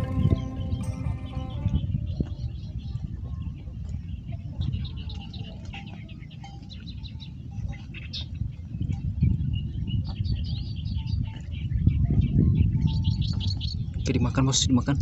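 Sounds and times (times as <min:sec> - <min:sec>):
steady low rumble: 0:00.0 - 0:05.0
small birds chirping: 0:00.0 - 0:15.0.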